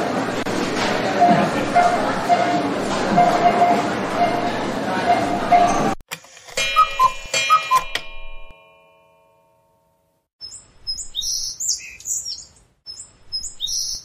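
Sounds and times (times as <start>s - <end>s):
clock chime: 6.6s - 9.9s
birds chirping: 10.4s - 14.0s.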